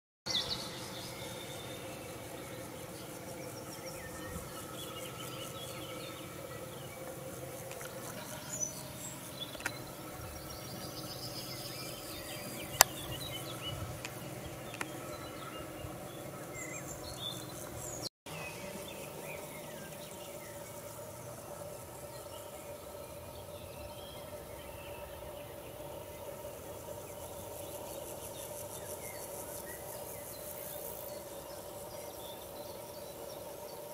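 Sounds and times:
insects buzzing and chirping: 0:00.3 - 0:33.9.

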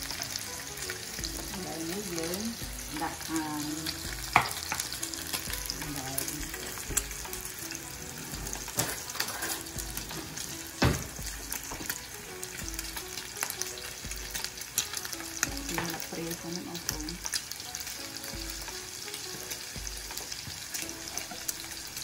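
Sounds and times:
meat sizzling in oil: 0:00.0 - 0:22.0
kitchen clatters: 0:04.3 - 0:12.1.

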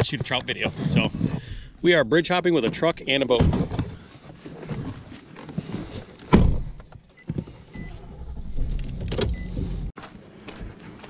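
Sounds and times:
knocking and rustling of handling: 0:00.0 - 0:01.7, 0:02.5 - 0:07.6
loud thump: 0:06.3 - 0:06.8.

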